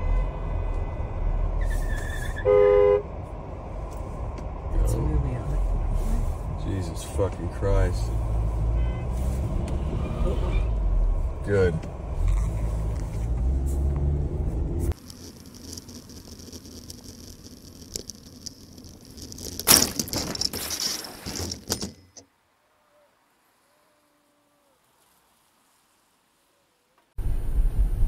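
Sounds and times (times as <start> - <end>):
vehicle low rumble: 0.0 - 22.1, 27.1 - 28.0
faint road noise: 0.0 - 28.0
clattering: 15.0 - 22.3.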